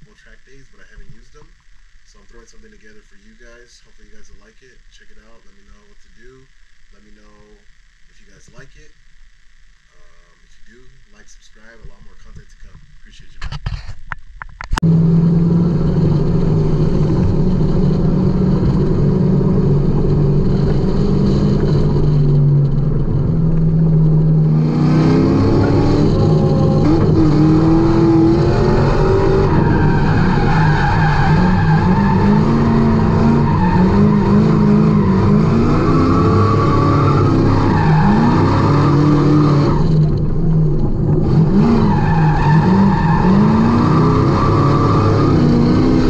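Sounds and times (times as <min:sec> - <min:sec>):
car engine revving: 0:14.8 - 0:46.0
tire skid: 0:15.2 - 0:46.0.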